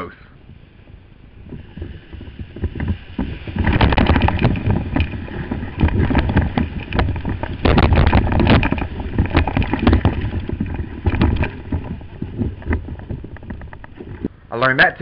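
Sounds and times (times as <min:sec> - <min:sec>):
breaking wave whitewater rushing: 0:01.4 - 0:13.3.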